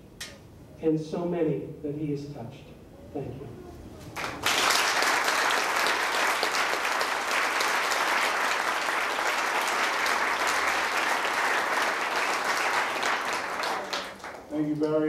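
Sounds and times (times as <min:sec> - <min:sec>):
audience applauding: 0:04.1 - 0:15.0.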